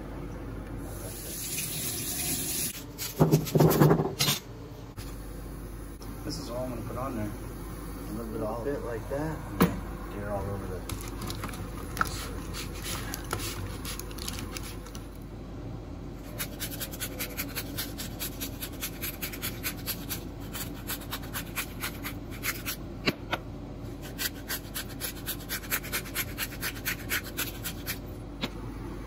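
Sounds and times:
hands rubbing asparagus on foil: 10.9 - 15.1
pepper grinder grinding: 10.9 - 15.2.

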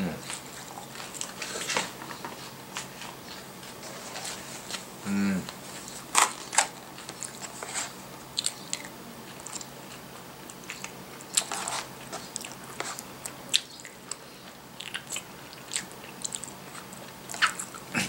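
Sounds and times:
person chewing and biting: 5.9 - 18.0.

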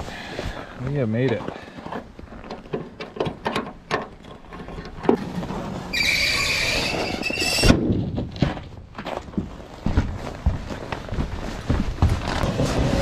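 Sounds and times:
hinges squealing: 5.9 - 7.7.

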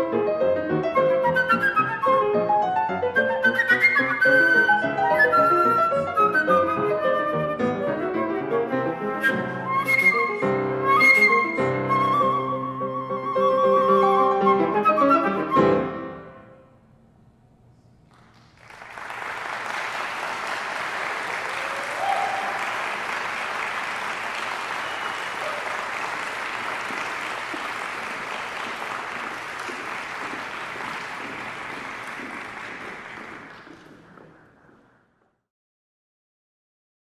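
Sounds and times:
audience applauding: 18.0 - 35.2.

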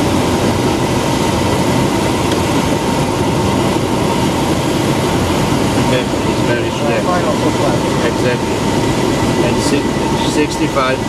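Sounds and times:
aircraft engine droning: 0.0 - 11.0.

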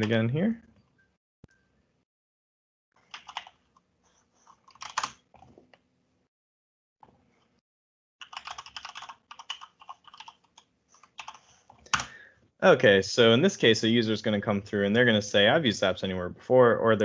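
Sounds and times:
typing on computer keyboard: 3.1 - 3.6, 4.5 - 5.2, 8.2 - 12.1.

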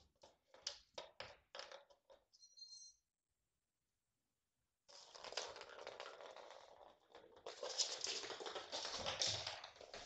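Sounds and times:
toy balls rolling on hardwood floor: 0.0 - 2.3, 4.9 - 10.0.

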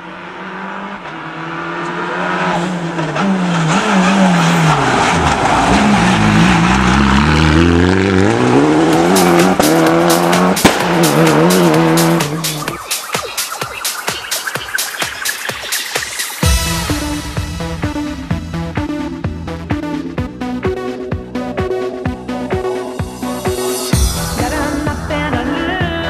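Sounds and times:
rally car engine revving: 0.0 - 12.8
electronic music with steady beat: 8.6 - 26.0.

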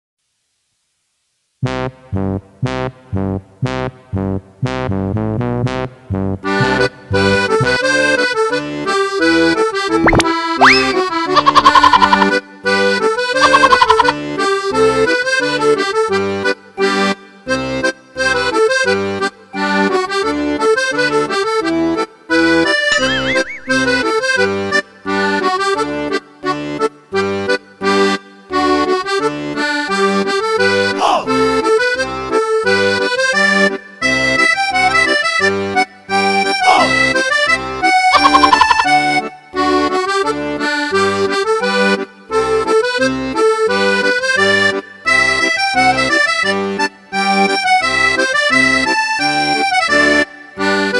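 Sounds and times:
lively music with steady beat: 1.6 - 8.4.

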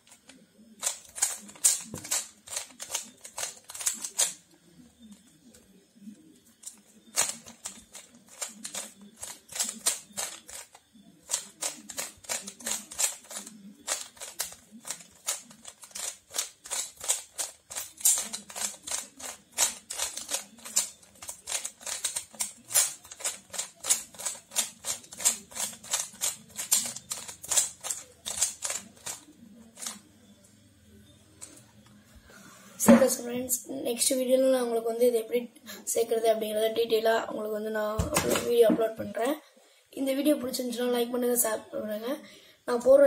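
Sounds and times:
puzzle cube layers clicking: 0.0 - 4.4, 6.6 - 30.1.

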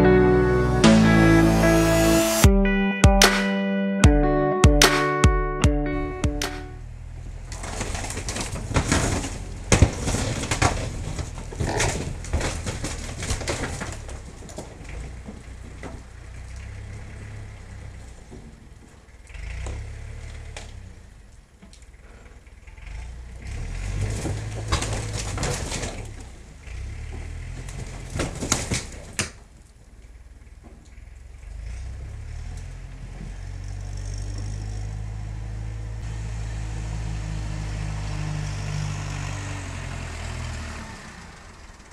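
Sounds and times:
tractor engine running: 0.0 - 2.6, 5.4 - 41.9
wood cracking and splintering: 7.4 - 22.4, 23.4 - 31.0.

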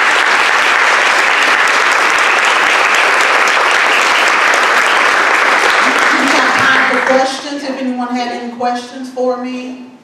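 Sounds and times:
audience applauding: 0.0 - 7.3.

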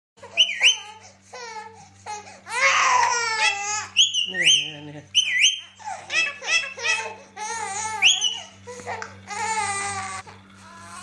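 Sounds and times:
parakeet whistled calls: 0.3 - 1.0, 4.0 - 7.0, 8.0 - 8.6.

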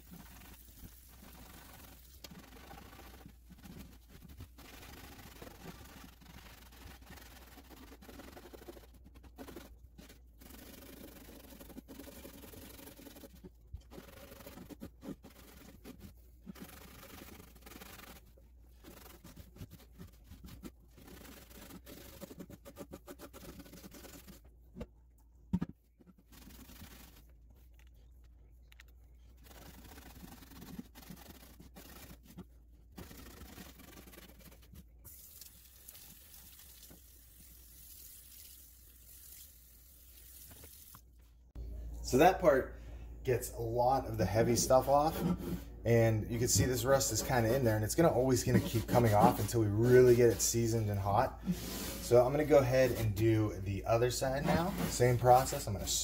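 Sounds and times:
rag scrubbing cast iron: 43.6 - 56.0.

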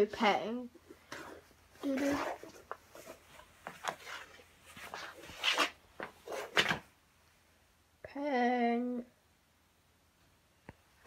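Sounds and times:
rustling scrapes: 0.7 - 6.9.

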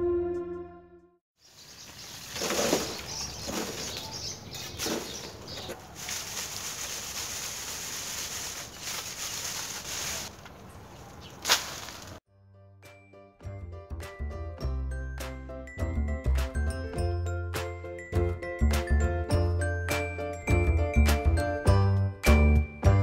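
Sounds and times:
soil rustling through wire sieve: 1.5 - 12.2.

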